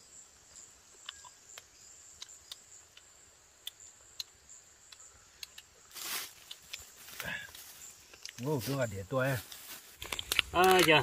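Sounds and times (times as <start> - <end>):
insects droning high-pitched: 0.0 - 11.0
sharp ticks: 1.0 - 5.7
rustling: 5.9 - 11.0.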